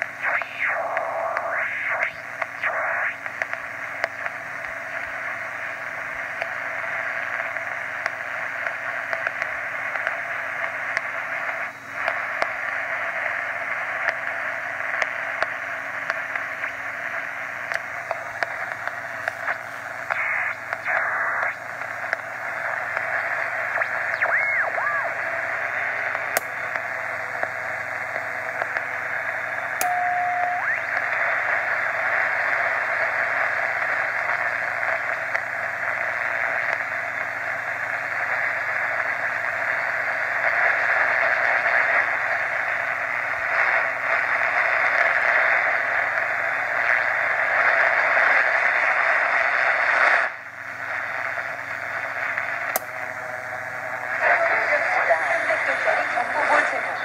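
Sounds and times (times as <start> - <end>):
radio receiver hissing static: 0.0 - 57.0
short steady tone: 29.8 - 30.8
sharp clicks: 52.7 - 53.0.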